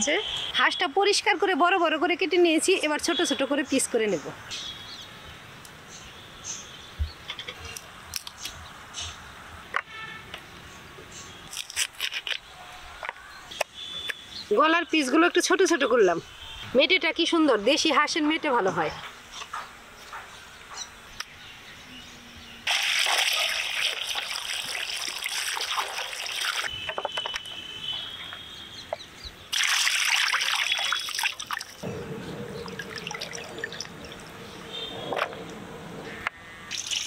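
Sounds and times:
water pouring and splashing: 22.7s - 26.9s, 29.5s - 35.2s, 36.7s - 37.0s.

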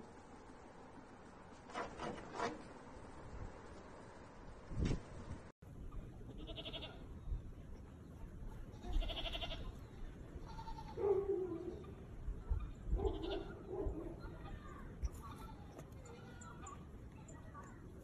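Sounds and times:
goat kids bleating: 6.3s - 7.0s, 8.7s - 9.8s, 10.4s - 11.0s, 13.0s - 13.7s, 15.1s - 16.8s.

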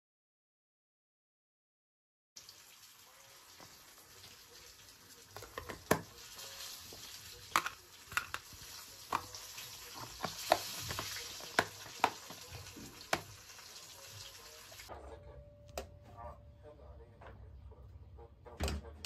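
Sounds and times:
plastic tubs clacking on stone: 5.4s - 6.1s, 7.4s - 13.4s.

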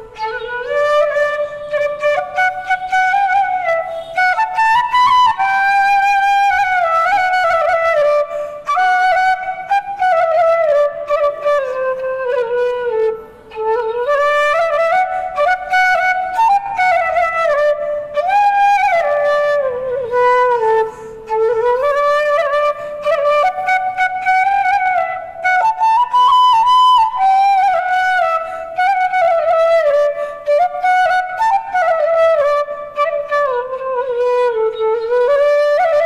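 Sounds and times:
bamboo flute melody: 0.0s - 36.0s.

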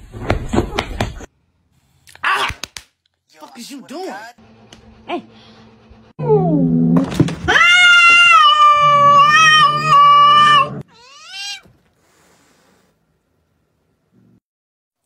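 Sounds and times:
cat yowling: 7.5s - 11.7s.

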